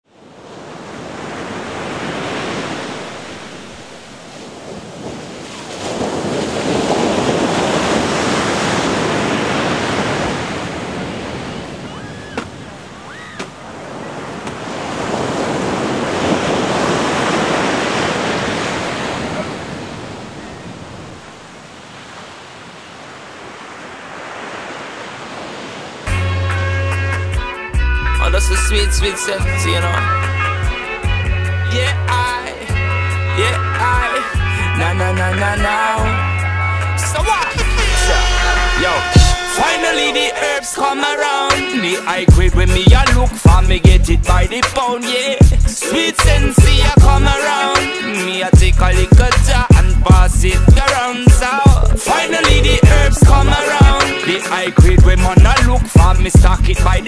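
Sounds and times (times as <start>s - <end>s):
ocean surf breaking on beach: 0.1s - 26.1s, 37.2s - 42.3s.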